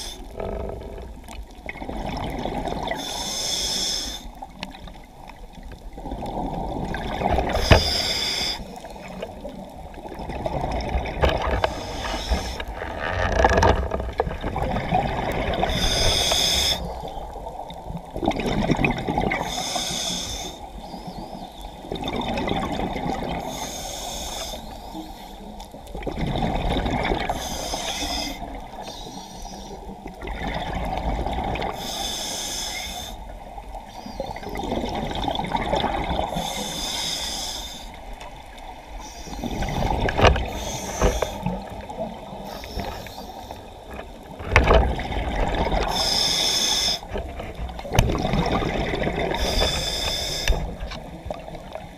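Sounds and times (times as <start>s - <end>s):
diver breathing: 0.0s - 1.2s, 2.9s - 4.4s, 7.4s - 9.3s, 11.6s - 12.8s, 15.6s - 17.1s, 19.4s - 21.1s, 23.4s - 25.5s, 27.2s - 29.9s, 31.6s - 33.3s, 36.2s - 38.0s, 38.9s - 44.7s, 45.7s - 47.2s, 49.1s - 50.9s
water sloshing and bubbling: 0.0s - 51.9s.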